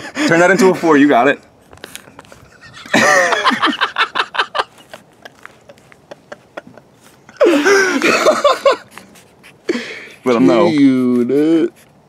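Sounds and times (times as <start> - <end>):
person laughing: 2.3 - 8.9.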